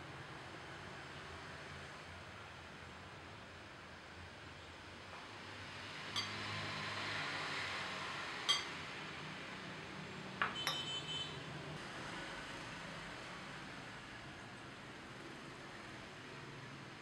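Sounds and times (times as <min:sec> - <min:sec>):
whisk clinking against glass: 0:06.2 - 0:06.4, 0:08.5 - 0:08.8.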